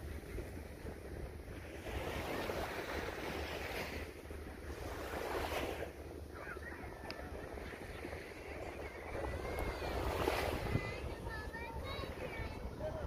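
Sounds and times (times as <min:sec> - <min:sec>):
small waves washing onto sand: 0:00.0 - 0:13.0
wind rumbling on microphone: 0:00.0 - 0:13.0.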